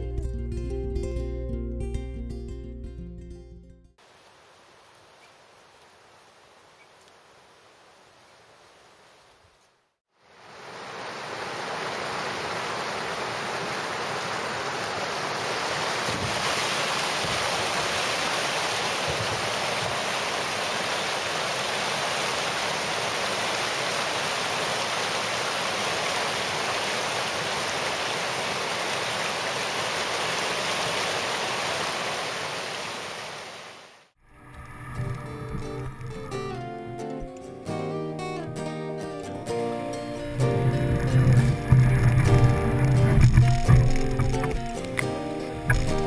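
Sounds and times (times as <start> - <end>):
river rapids rushing: 10.3 - 33.9, 40.1 - 46.0.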